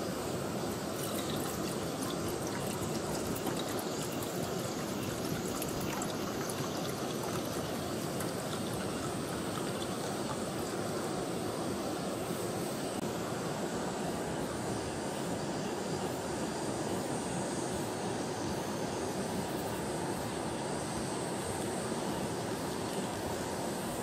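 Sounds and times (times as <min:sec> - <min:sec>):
water pouring into metal pot: 0:00.7 - 0:11.0.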